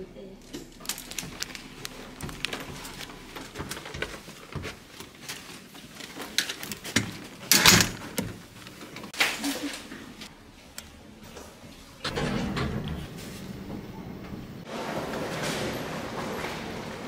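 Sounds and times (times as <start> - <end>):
clicks and rustles of movement: 0.4 - 12.2.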